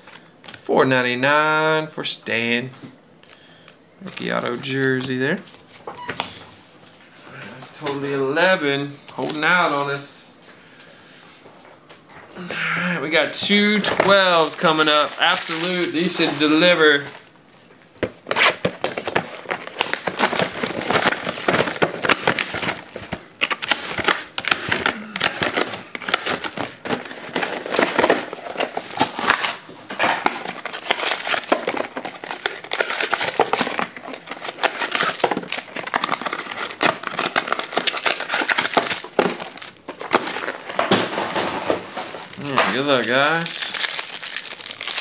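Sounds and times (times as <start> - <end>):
plastic film crinkling: 13.4 - 45.0.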